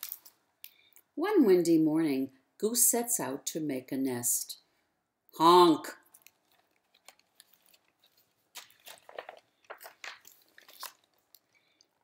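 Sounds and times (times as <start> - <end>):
paper page rustling and crackling: 6.2 - 11.8.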